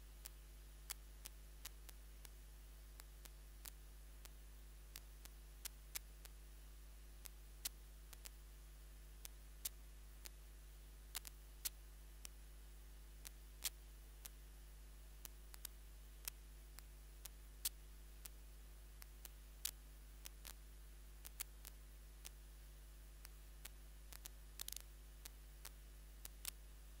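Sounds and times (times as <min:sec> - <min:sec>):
faint low hum: 0:00.0 - 0:27.0
brief crackle: 0:11.1 - 0:12.4, 0:13.2 - 0:14.4, 0:19.0 - 0:20.6, 0:23.2 - 0:26.6.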